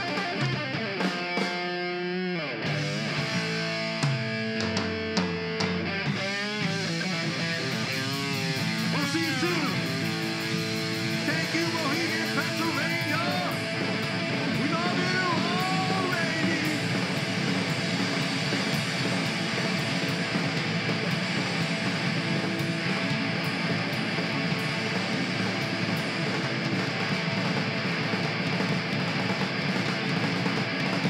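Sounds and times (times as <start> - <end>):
drums with cymbal hits: 0.0 - 1.9, 2.7 - 31.0
bass guitar: 0.0 - 31.0
electric guitar: 0.0 - 31.0
man singing: 14.6 - 16.8.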